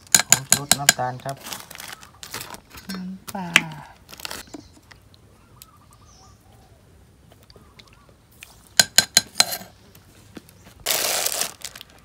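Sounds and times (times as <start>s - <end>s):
faint bird chirps: 4.3s - 8.2s.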